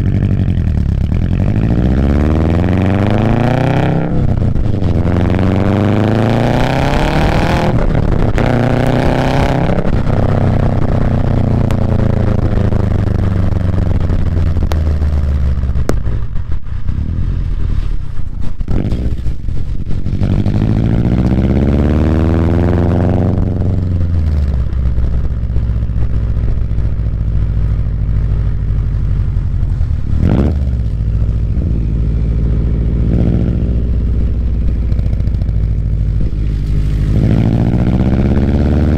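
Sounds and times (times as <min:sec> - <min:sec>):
car engine exhaust revving: 0:00.0 - 0:38.9.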